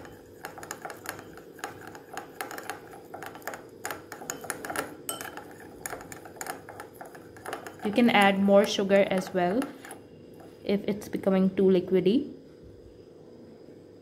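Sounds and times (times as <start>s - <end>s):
teaspoon stirring in ceramic bowl: 0.0s - 10.6s.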